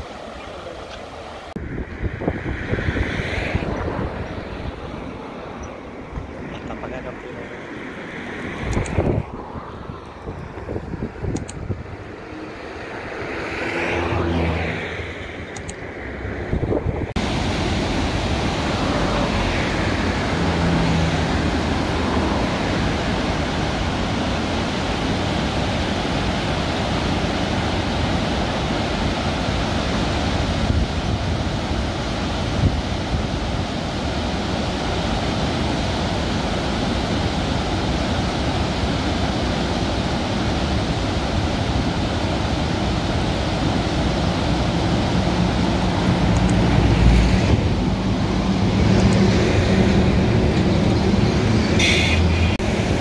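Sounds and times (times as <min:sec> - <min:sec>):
white water rushing over boulders: 0:00.0 - 0:01.6, 0:17.2 - 0:53.0.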